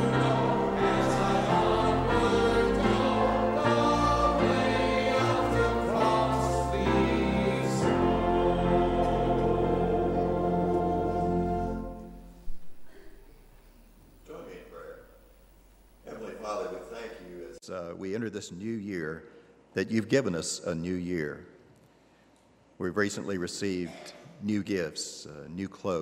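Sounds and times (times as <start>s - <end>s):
church choir singing: 0.0s - 12.5s
instrumental accompaniment: 0.0s - 12.6s.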